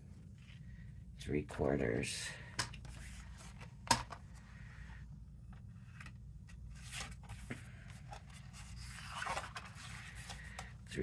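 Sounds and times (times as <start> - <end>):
cardstock rustling and sliding: 5.8 - 10.7.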